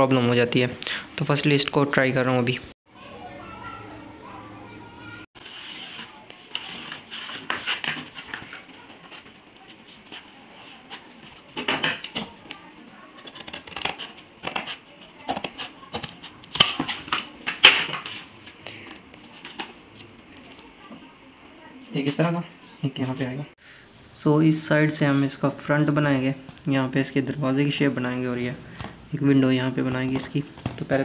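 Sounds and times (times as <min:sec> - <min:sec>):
scissors cutting cardboard: 0:05.4 - 0:18.3.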